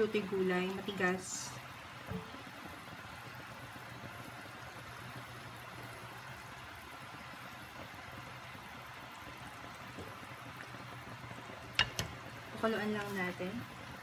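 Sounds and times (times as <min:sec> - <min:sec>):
broth bubbling in a pot: 0:00.0 - 0:14.0
wooden spoon stirring broth: 0:11.4 - 0:13.4.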